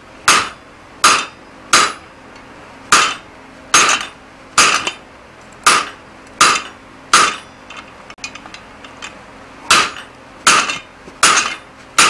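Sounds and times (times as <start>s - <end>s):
hammer clanging on metal die: 9.7s - 11.6s.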